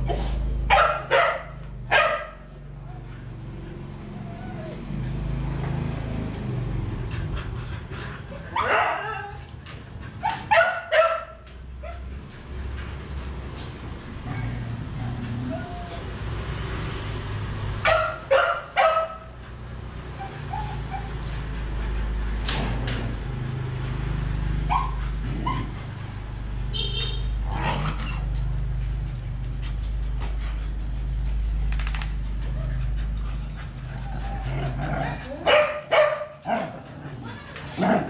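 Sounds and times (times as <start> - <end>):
dog yips and whimpers: 0.0 - 1.4, 4.0 - 5.4, 7.3 - 9.6, 10.2 - 12.1, 14.2 - 16.2, 17.8 - 19.3, 20.1 - 22.2, 24.6 - 26.1, 27.9 - 29.4
dogs barking: 0.0 - 3.5, 8.2 - 9.5, 10.2 - 12.2, 17.8 - 19.4, 24.6 - 26.1, 32.4 - 38.0.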